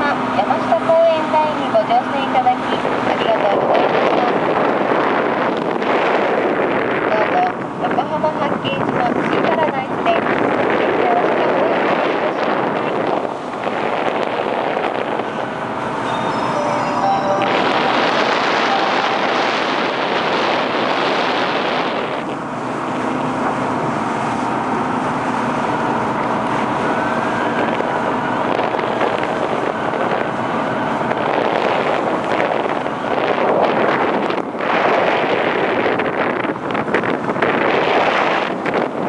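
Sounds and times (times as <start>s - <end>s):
wind buffeting microphone: 0.0s - 39.0s
ferry engine: 10.1s - 34.7s
water rushing: 10.6s - 38.9s.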